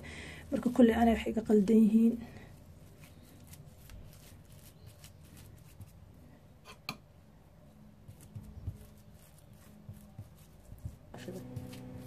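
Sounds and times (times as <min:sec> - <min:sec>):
hands spreading minced meat: 0:02.5 - 0:06.2, 0:08.0 - 0:12.0.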